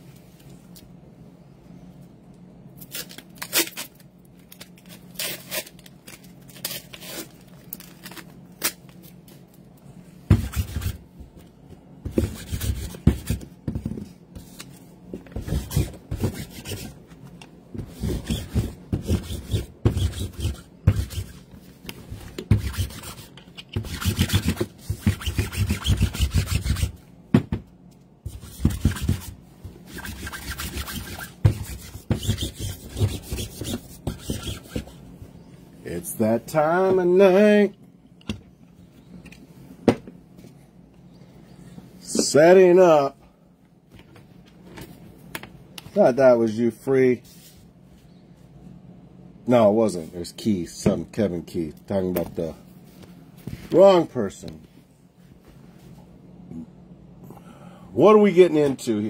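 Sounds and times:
rubbing and bumping on desk mat: 0:10.2 - 0:35.4.

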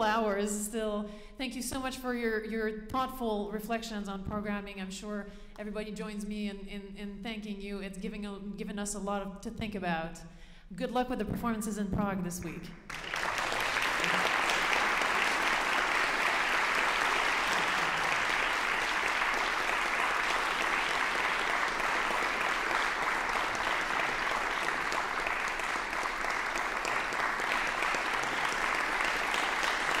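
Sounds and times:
audience applauding: 0:12.9 - 0:30.0.

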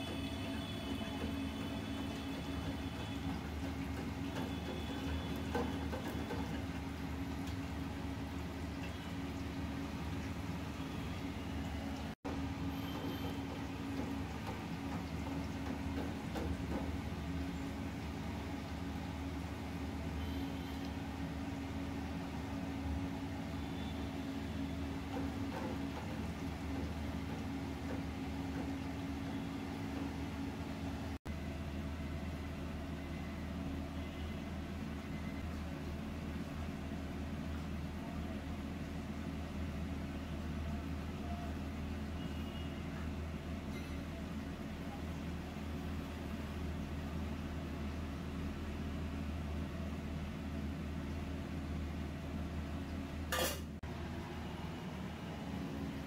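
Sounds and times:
low mechanical hum: 0:00.0 - 0:56.0
cookware clatter: 0:53.3 - 0:53.7.

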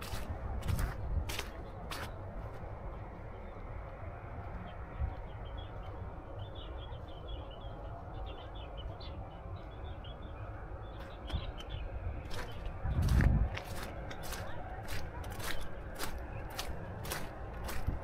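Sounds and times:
birds chirping: 0:00.0 - 0:18.0.

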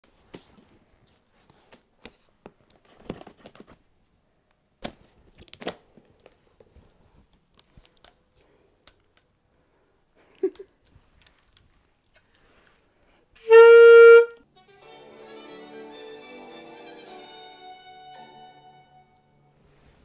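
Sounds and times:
rustling: 0:19.6 - 0:20.0.

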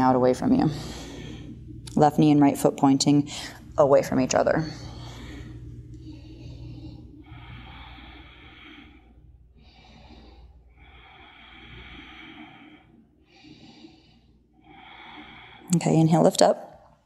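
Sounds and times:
person breathing through nose: 0:00.6 - 0:01.8, 0:04.7 - 0:15.8.

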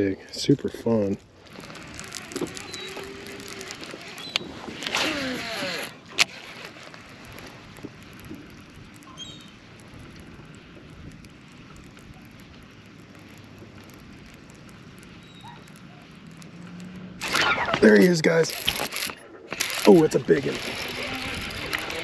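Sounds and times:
hiss of wind and water: 0:00.0 - 0:22.0
fishing reel spool whirring: 0:01.3 - 0:11.2, 0:16.6 - 0:22.0.

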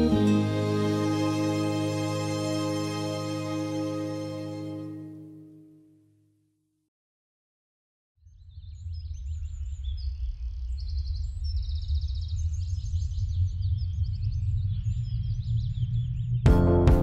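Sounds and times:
birds chirping and trilling: 0:08.3 - 0:16.4.

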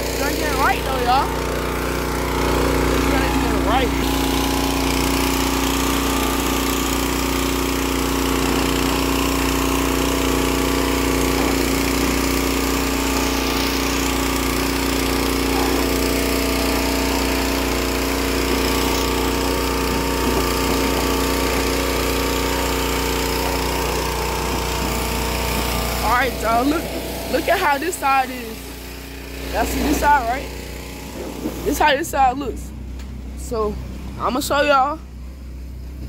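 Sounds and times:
pressure washer motor drone: 0:00.0 - 0:36.0
high-pressure spray hissing: 0:02.9 - 0:30.2.

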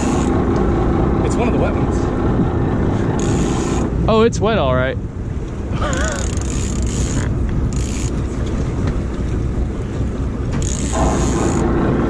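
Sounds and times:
boat engine running: 0:00.0 - 0:12.0
wind buffeting microphone: 0:00.0 - 0:12.0.

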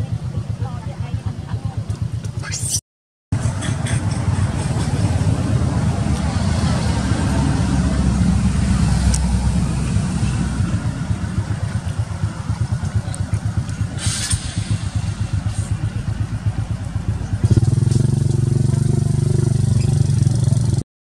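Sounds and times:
motorcycle engine idling: 0:00.0 - 0:02.4, 0:03.4 - 0:20.8
brief hiss: 0:14.0 - 0:15.8.

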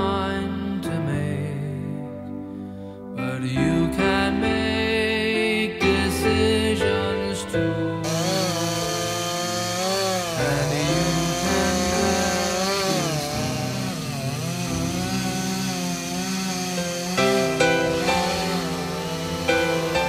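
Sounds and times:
chainsaw cutting wood: 0:08.0 - 0:20.0.

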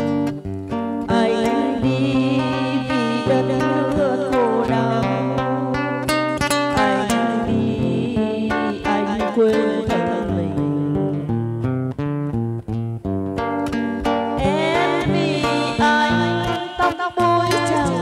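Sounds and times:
acoustic guitar melody: 0:00.0 - 0:18.0
woman singing: 0:01.1 - 0:11.3, 0:14.4 - 0:18.0.

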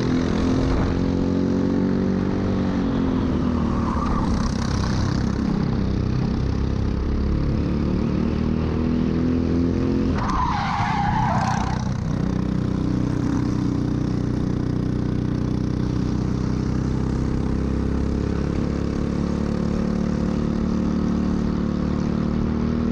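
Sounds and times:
kart engine: 0:00.0 - 0:08.2
tyres skidding: 0:10.1 - 0:12.1.

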